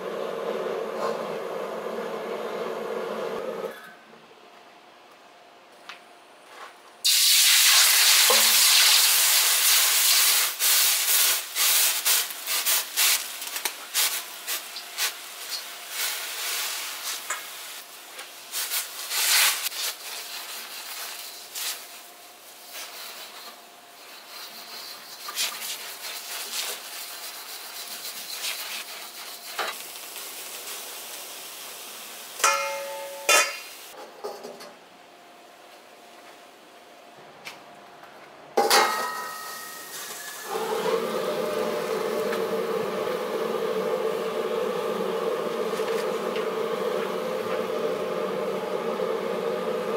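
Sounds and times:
water hissing in hot wok: 7.0s - 34.0s, 39.9s - 49.9s
metal clanks ringing: 32.4s - 33.6s.

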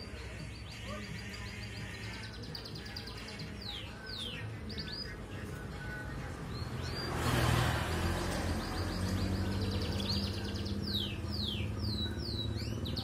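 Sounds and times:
canary singing: 0.0s - 13.0s.

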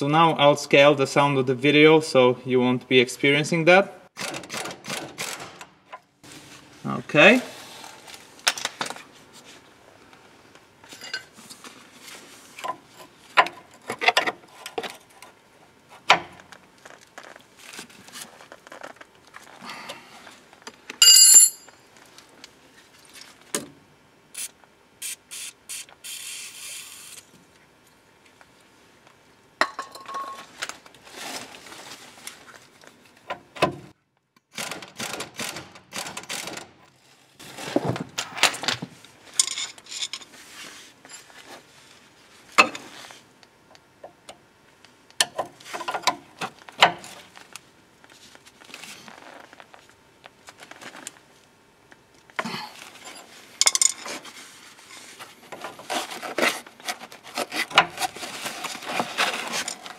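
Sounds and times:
metal tools clinking and scraping: 10.9s - 11.4s, 21.0s - 21.8s, 39.3s - 40.4s, 53.0s - 54.2s.

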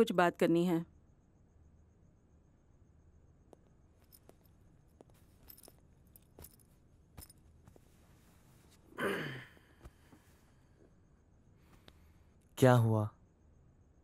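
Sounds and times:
bag clicks and rustles: 4.0s - 8.0s.

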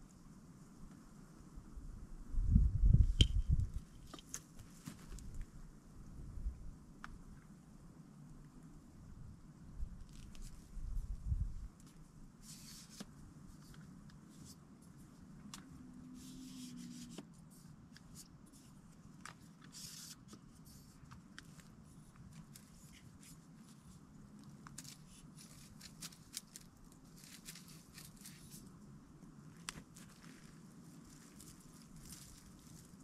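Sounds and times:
clicks and scrapes of handling gear: 3.0s - 5.5s, 10.0s - 10.8s, 11.8s - 28.8s, 29.5s - 33.0s
faint rustling: 11.8s - 33.0s.

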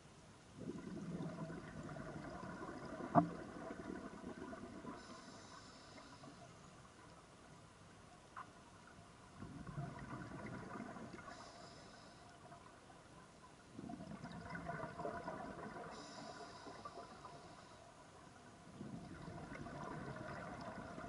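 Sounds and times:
exhaled bubbles gurgling underwater: 0.6s - 7.0s, 9.0s - 21.0s.

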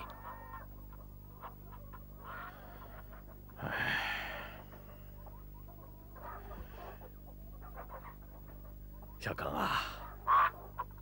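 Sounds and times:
hens clucking: 0.0s - 9.2s, 10.0s - 11.0s
steady low hum: 0.0s - 11.0s
man sighing heavily: 3.6s - 4.6s.

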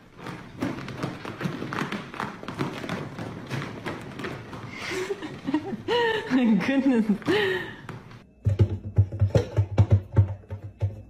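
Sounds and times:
pets thumping and tapping: 0.0s - 6.1s.

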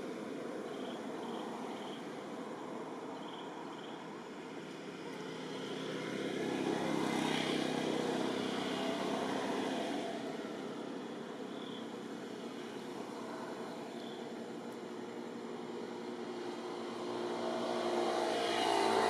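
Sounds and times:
vehicle passing by: 4.9s - 11.2s, 15.1s - 19.0s.

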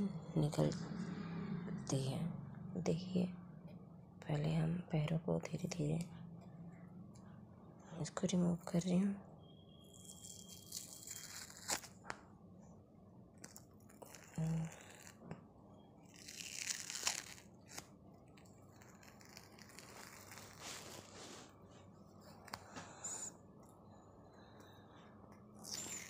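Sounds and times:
patch rustling and crinkling: 18.7s - 21.9s.

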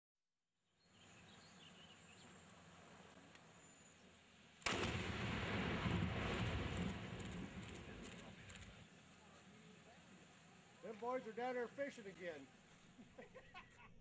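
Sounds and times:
birds chirping: 0.8s - 4.3s
explosive blast: 4.6s - 8.8s
structure collapsing rumble: 4.7s - 8.8s.

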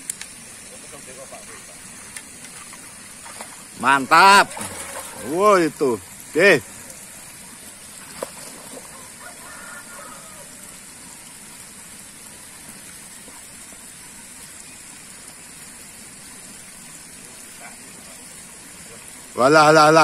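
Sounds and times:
water rushing: 0.0s - 20.0s.

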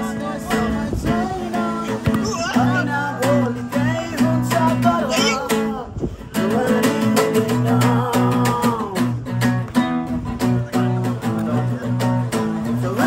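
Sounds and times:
person singing: 0.0s - 9.4s
strummed acoustic guitar: 0.0s - 13.0s.

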